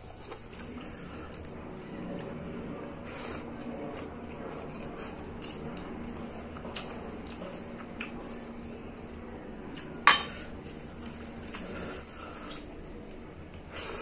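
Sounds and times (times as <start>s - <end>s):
metal bowl clanking on table: 10.1s - 10.4s.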